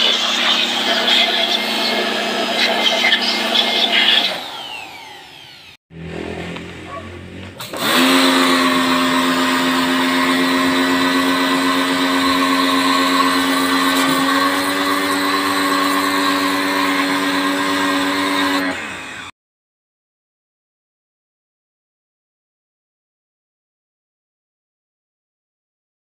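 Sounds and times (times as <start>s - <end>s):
pressure washer motor humming: 0.0s - 19.3s.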